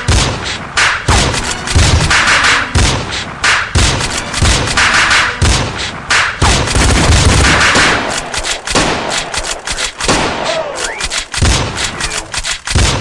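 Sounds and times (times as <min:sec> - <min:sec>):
electronic soundtrack: 0:00.0 - 0:12.4
gunshot sound effects: 0:00.0 - 0:13.0
heavy bass hits: 0:05.4 - 0:07.9.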